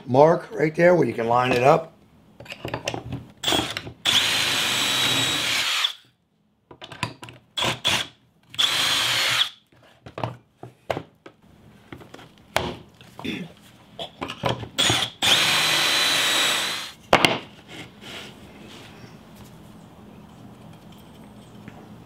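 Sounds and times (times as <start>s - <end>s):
cordless drill motor whine: 3.4s - 6.0s, 8.6s - 9.5s, 14.8s - 16.9s.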